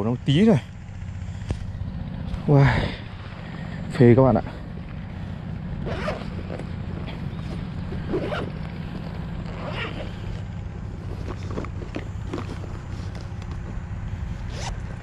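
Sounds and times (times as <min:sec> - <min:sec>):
bag zipper being pulled open: 0:05.8 - 0:10.5, 0:14.5 - 0:14.8.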